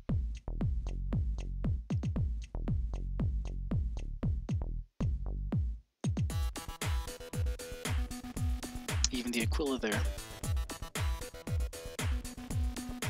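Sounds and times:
electronic music with sweeping bass: 0:06.3 - 0:13.0.

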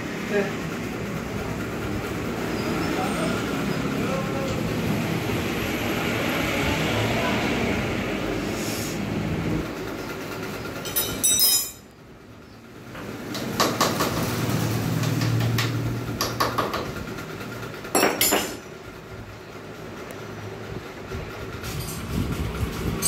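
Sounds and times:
sharp metal clatter: 0:10.7 - 0:11.9, 0:17.9 - 0:18.7
metal engine parts clinking: 0:10.7 - 0:12.0, 0:17.9 - 0:18.7, 0:21.6 - 0:22.2.

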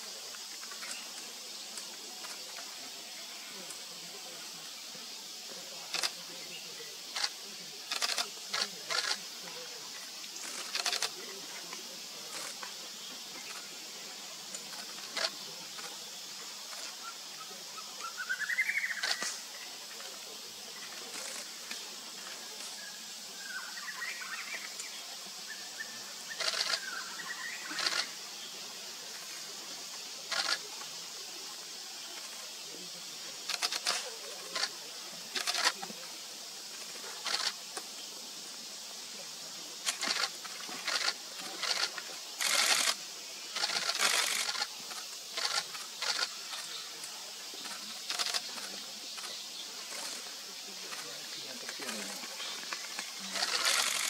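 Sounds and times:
steady high hiss: 0:00.0 - 0:54.0
faint bird calls: 0:16.7 - 0:28.3.

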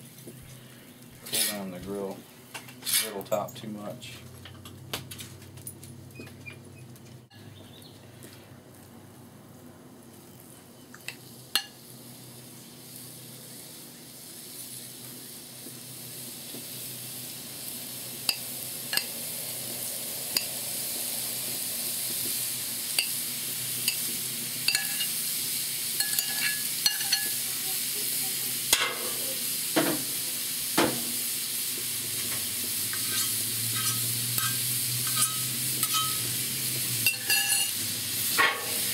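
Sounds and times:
chicken sizzling on a griddle: 0:00.0 - 0:38.9
metal spatula scraping griddle: 0:01.2 - 0:01.7, 0:02.6 - 0:03.3, 0:24.7 - 0:25.1, 0:26.0 - 0:27.4, 0:32.2 - 0:36.4, 0:37.0 - 0:38.9.

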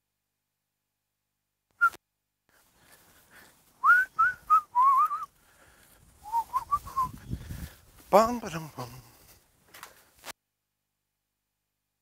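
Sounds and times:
person whistling a tune: 0:03.8 - 0:05.3, 0:06.2 - 0:07.3.

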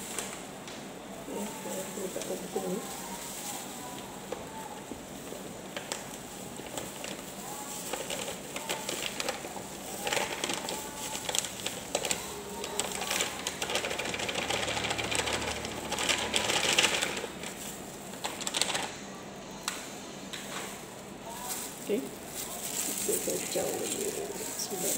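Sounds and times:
foil bag crinkling: 0:00.0 - 0:19.2, 0:20.4 - 0:24.9
powder pouring: 0:05.4 - 0:18.6.

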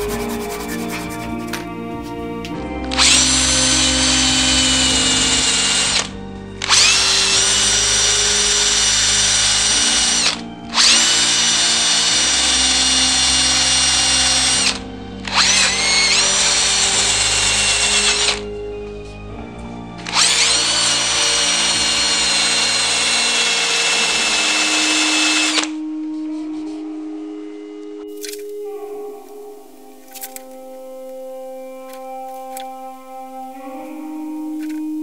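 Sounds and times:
electric drill sanding wood: 0:00.0 - 0:01.7, 0:02.9 - 0:18.5, 0:20.0 - 0:25.8.

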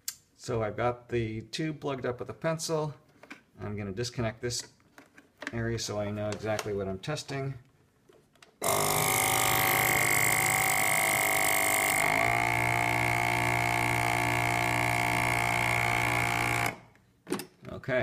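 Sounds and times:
electric vacuum pump motor running: 0:08.6 - 0:16.9.

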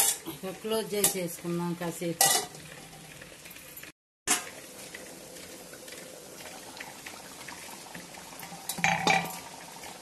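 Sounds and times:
curry bubbling in a pan: 0:04.4 - 0:10.0.

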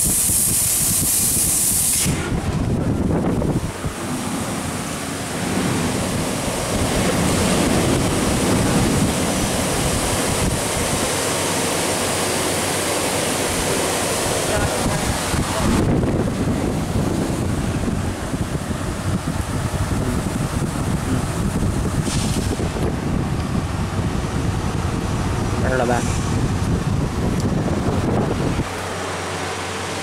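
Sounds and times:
machine hiss: 0:00.0 - 0:02.4
low machine rumble: 0:02.0 - 0:30.0.

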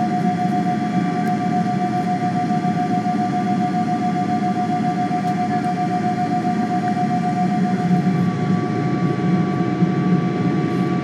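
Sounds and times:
jet engine idle whine: 0:00.0 - 0:11.0
low cabin rumble: 0:04.7 - 0:11.0.

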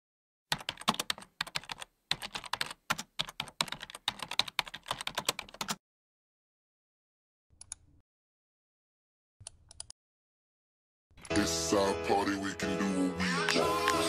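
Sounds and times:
keyboard typing: 0:00.5 - 0:05.8.

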